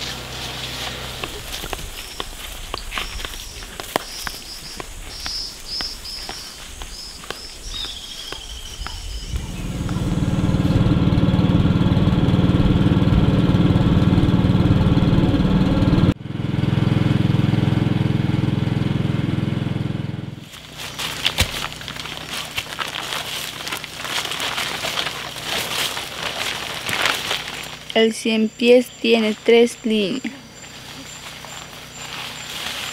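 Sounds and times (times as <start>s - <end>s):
small boat motor running: 0.0s - 2.5s, 9.2s - 27.9s, 30.4s - 32.9s
footsteps: 0.0s - 10.1s, 20.4s - 28.2s, 29.2s - 32.9s.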